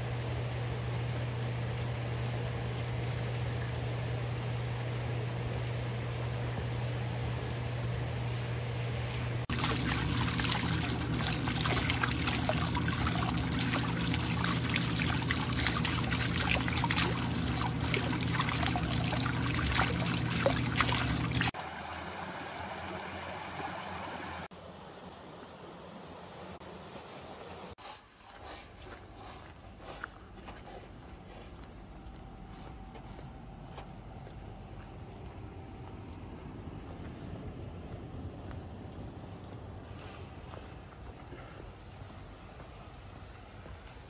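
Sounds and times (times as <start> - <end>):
low steady hum: 0.0 - 44.0
water gurgling from spout: 9.5 - 23.0.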